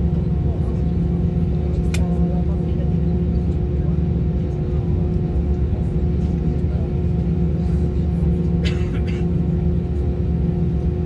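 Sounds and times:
jet engines idling: 0.0 - 11.0.

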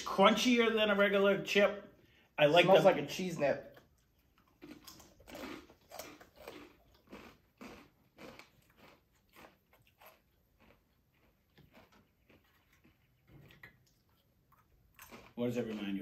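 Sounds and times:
crunchy chewing of chips: 3.6 - 16.0.

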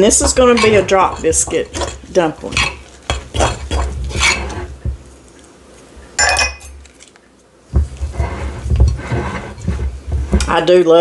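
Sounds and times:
spoon scraping mixing bowl: 0.0 - 5.5, 7.7 - 10.8
heavy knocks: 2.6 - 5.1, 7.7 - 10.7
ringing clink: 6.2 - 6.7.

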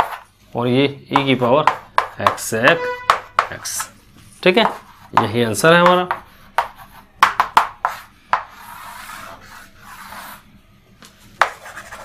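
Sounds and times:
chalk tapping on blackboard: 0.0 - 0.3, 1.1 - 3.9, 4.6 - 10.4, 11.4 - 12.0
chalk scraping on blackboard: 3.1 - 5.3, 6.1 - 10.4, 11.4 - 12.0.

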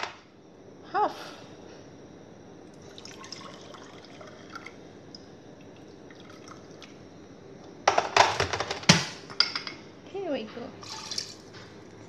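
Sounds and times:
water trickling into mug: 2.7 - 6.9, 10.8 - 12.0
water drips and splashes: 10.8 - 11.6.

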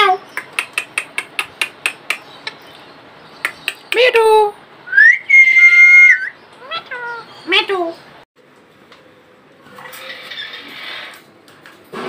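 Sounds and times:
parakeet clicking: 0.3 - 2.6, 3.4 - 4.1
parakeet calling: 6.2 - 7.9.

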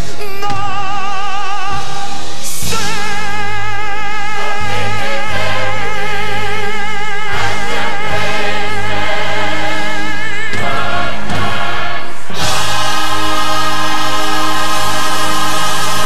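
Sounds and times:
chorus singing with orchestra: 0.0 - 16.0.

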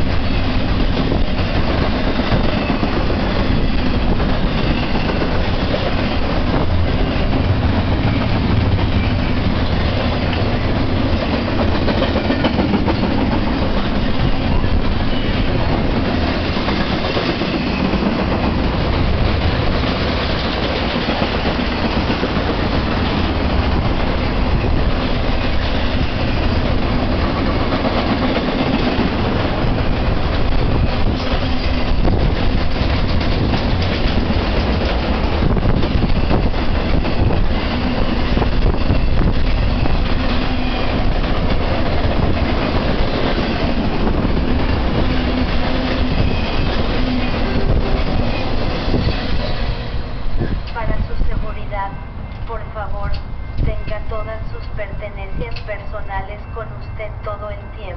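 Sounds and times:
freight train wheels on rails: 0.0 - 57.9.

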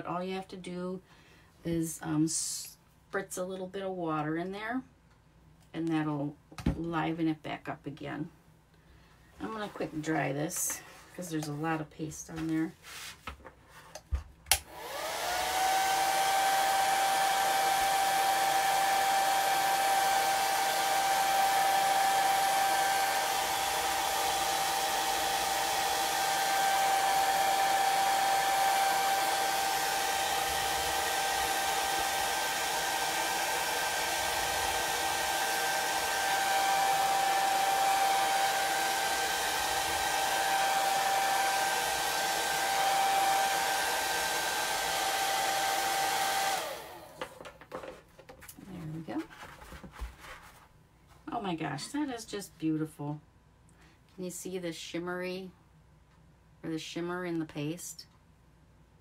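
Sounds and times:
hair dryer running: 14.5 - 47.6.

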